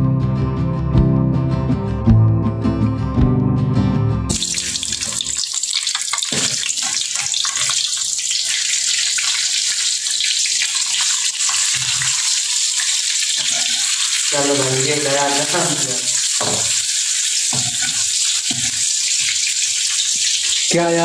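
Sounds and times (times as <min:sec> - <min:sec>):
egg sizzling in hot oil: 0:04.3 - 0:20.8.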